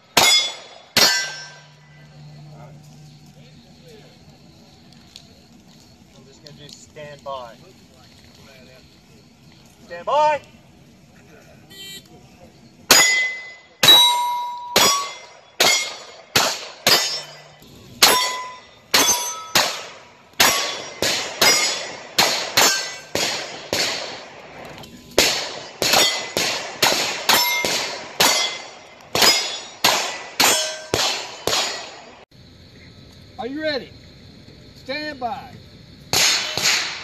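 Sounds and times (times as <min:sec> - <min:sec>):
steel plate clanging: 0:00.1 - 0:02.2, 0:12.9 - 0:23.2, 0:27.3 - 0:32.1
gunshots: 0:00.1 - 0:02.3, 0:12.9 - 0:32.2, 0:36.1 - 0:37.0.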